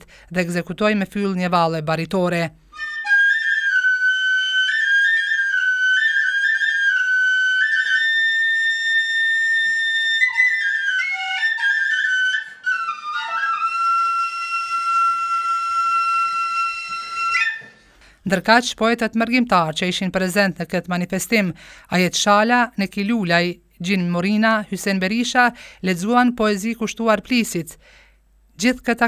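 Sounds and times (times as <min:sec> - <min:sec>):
end-blown flute melody: 0:02.8 - 0:17.8.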